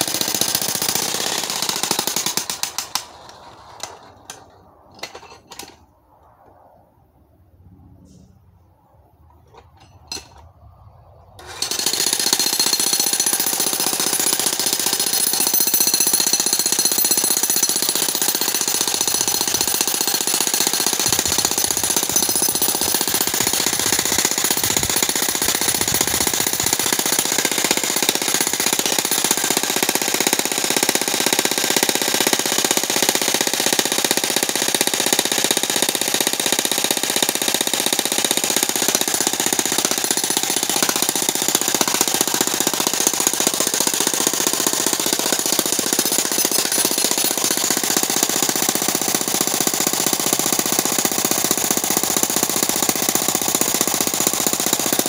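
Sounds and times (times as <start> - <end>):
jackhammer breaking rock: 11.4 - 55.0.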